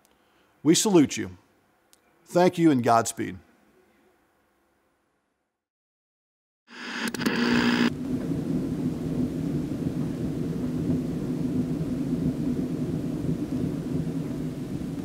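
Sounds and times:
low thunder rumble: 7.9s - 15.0s
thunder clap and cracks: 7.9s - 15.0s.

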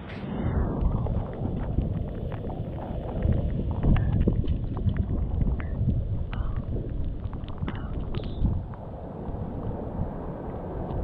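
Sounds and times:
wind rumbling on microphone: 0.0s - 11.0s
water lapping in rock pool: 0.8s - 9.0s.

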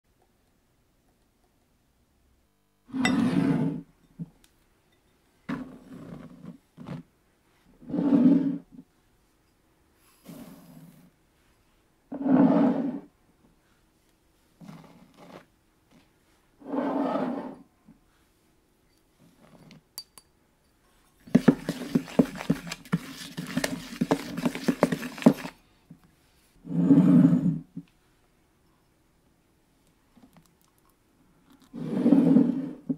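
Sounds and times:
glass bowl sliding on wooden table: 2.9s - 3.9s, 7.8s - 8.7s, 12.1s - 13.1s, 16.6s - 17.7s, 26.6s - 27.7s, 31.8s - 32.9s
dry mix stirred in plastic bowl: 21.2s - 25.6s
utensil knocking against bowl: 21.3s - 25.5s.

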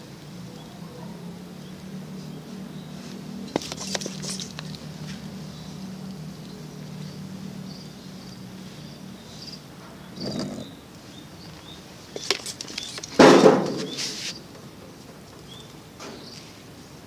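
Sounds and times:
trigger sprayer squirting: 3.5s - 4.8s.

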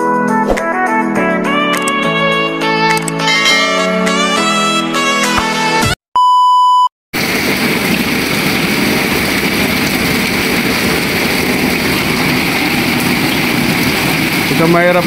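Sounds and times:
heavy rain on standing water: 7.2s - 15.0s.

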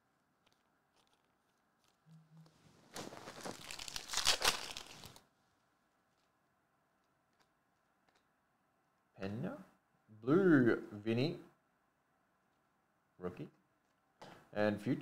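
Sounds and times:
plastic wrapper tearing and crinkling: 0.4s - 2.2s, 2.8s - 5.3s.

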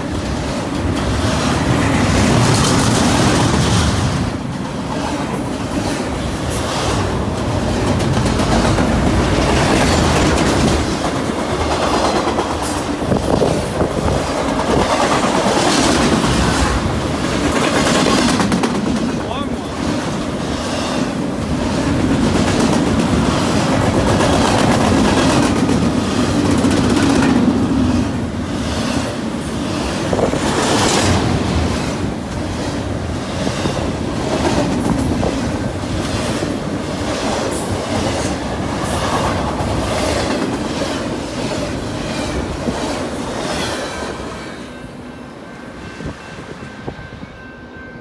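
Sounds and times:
freight train rolling past: 0.0s - 48.0s.

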